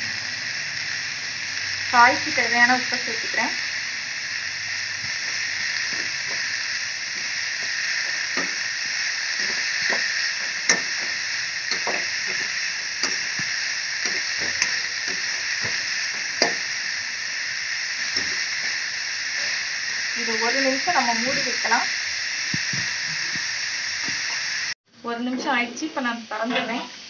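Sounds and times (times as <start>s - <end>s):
vegetables sizzling in hot oil: 0.0s - 27.0s
spatula scraping pan: 9.4s - 16.8s.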